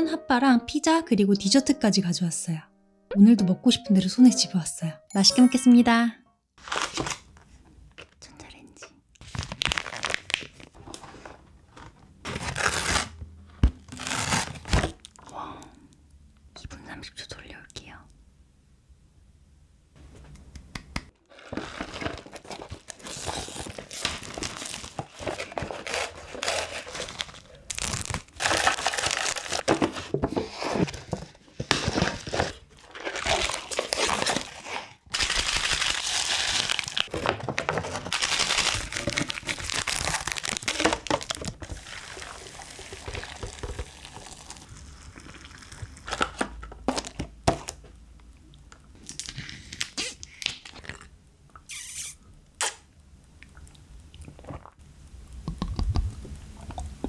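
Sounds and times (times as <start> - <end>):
packaging crinkling and tearing: 6.6 - 8.2, 9.2 - 13.2, 13.8 - 15.2, 21.2 - 47.8, 49.0 - 51.1.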